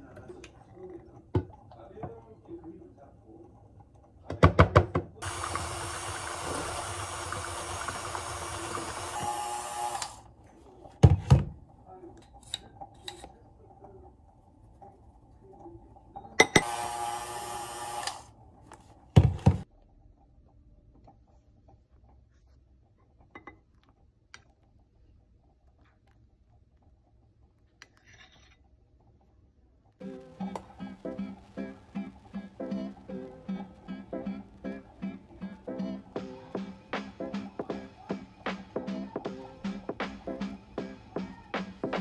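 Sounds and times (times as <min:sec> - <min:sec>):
stand mixer whirring: 0:05.2 - 0:10.2.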